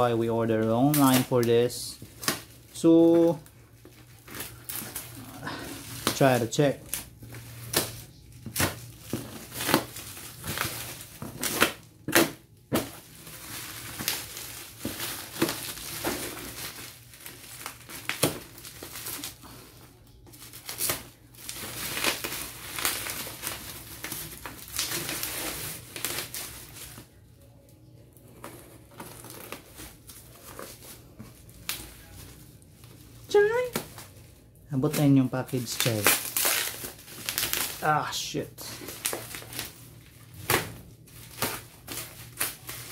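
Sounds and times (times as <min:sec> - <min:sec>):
bubble wrap crinkling and snapping: 0:00.0 - 0:42.9
knife cutting bubble wrap: 0:00.5 - 0:19.4, 0:20.5 - 0:27.1, 0:28.2 - 0:32.2, 0:34.8 - 0:38.0, 0:40.4 - 0:42.9.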